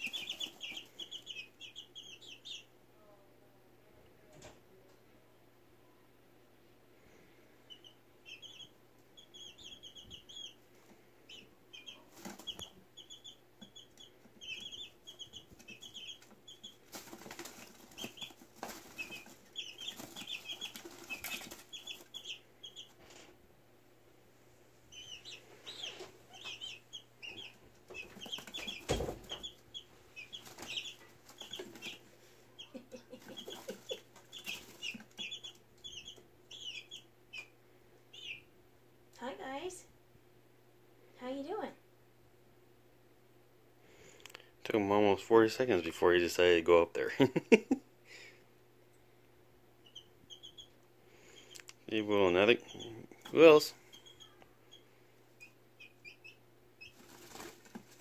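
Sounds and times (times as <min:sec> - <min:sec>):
wing flapping and scuffling: 0:00.0 - 0:01.2, 0:11.9 - 0:12.8, 0:13.7 - 0:23.4, 0:25.3 - 0:32.2, 0:33.0 - 0:35.9, 0:56.8 - 0:58.0
chicks peeping: 0:00.0 - 0:02.8, 0:07.6 - 0:23.4, 0:24.9 - 0:38.6, 0:49.8 - 0:58.0.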